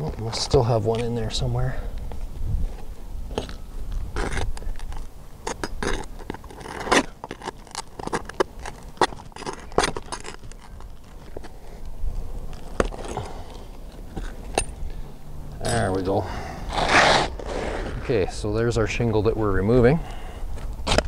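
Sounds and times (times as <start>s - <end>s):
pry bar scraping under shingles: 4.1s - 14.9s, 16.7s - 18.3s.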